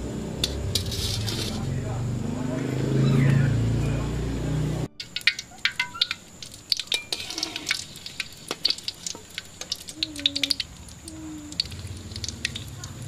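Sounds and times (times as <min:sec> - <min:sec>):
oil crackling and popping: 0:05.0 - 0:13.0.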